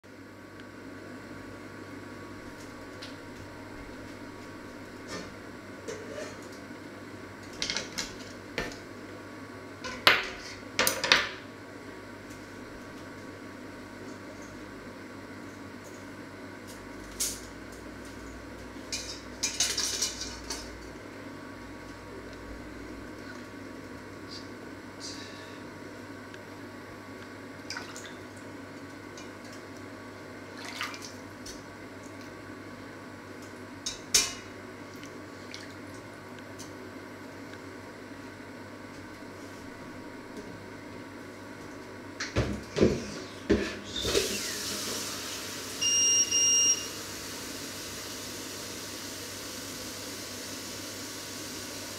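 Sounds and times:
low background hum: 0:00.0 - 0:50.1
water splashes and drips: 0:27.7 - 0:28.2, 0:30.5 - 0:31.2, 0:35.4 - 0:35.8.

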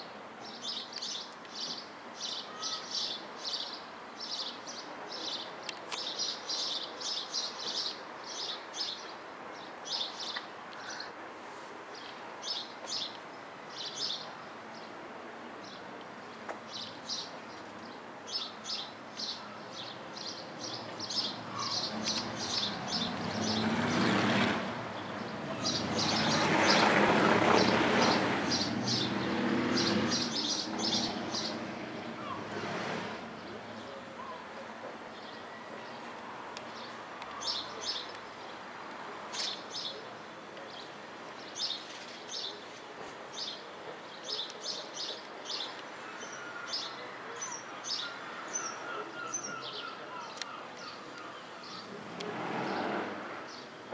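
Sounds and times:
small birds chirping: 0:00.4 - 0:11.2, 0:15.6 - 0:24.2, 0:25.0 - 0:26.9, 0:27.6 - 0:32.4.

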